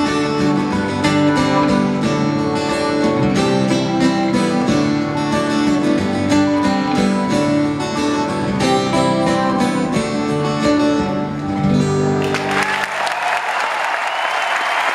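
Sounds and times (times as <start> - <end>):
acoustic guitars strumming: 0.0 - 12.5
audience applause: 12.1 - 14.9.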